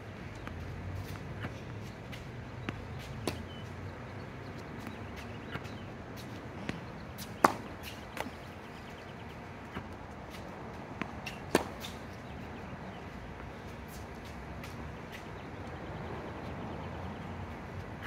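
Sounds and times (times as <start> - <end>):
racket hitting tennis ball: 3.0 - 3.6, 4.8 - 8.5, 11.0 - 12.1.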